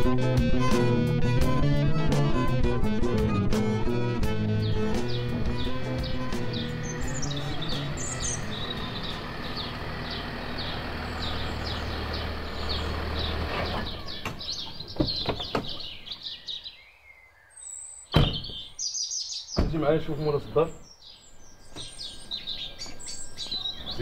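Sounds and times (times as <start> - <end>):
car engine and tyres: 0.0 - 16.2
small birds chirping: 4.4 - 24.0
car door shutting: 18.2 - 18.6.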